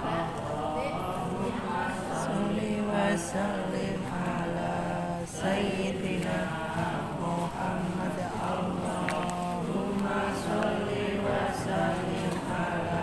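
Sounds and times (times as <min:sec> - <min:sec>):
voices chanting a prayer: 0:00.0 - 0:13.0.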